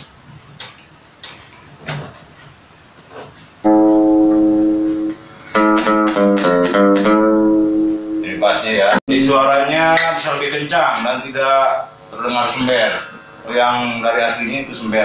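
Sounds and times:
guitar chord strummed: 0:03.6 - 0:08.9
guitar notes picked: 0:03.6 - 0:08.9.

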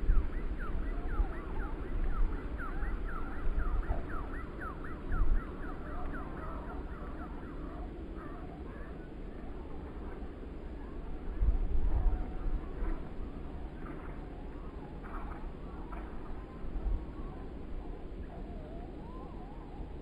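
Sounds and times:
birds chirping: 0:00.0 - 0:09.0
wind gusting against microphone: 0:00.0 - 0:20.0.

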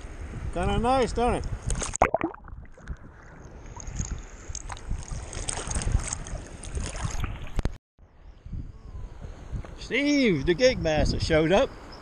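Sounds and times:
wind rumbling on microphone: 0:00.0 - 0:12.0
water sloshing and lapping: 0:01.7 - 0:07.8.

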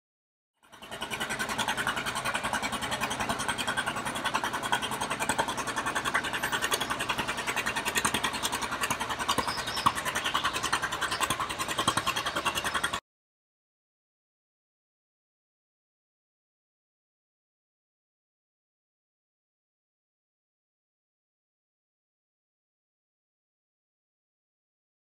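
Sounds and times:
engine exhaust pop: 0:00.6 - 0:13.0
tractor engine running: 0:00.6 - 0:13.0.

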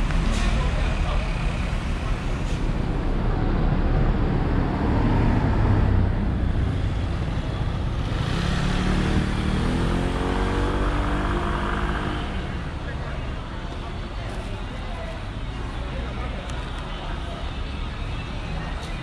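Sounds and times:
scooters and cars passing: 0:00.0 - 0:19.0
engine accelerating: 0:08.0 - 0:12.4.

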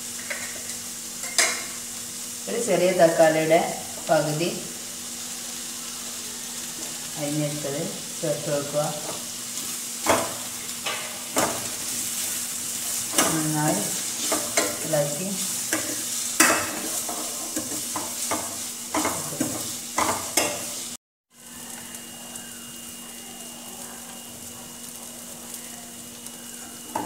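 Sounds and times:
vegetables sizzling in oil: 0:00.0 - 0:27.0
spoon scraping and knocking pan: 0:09.0 - 0:14.9, 0:15.6 - 0:20.8.

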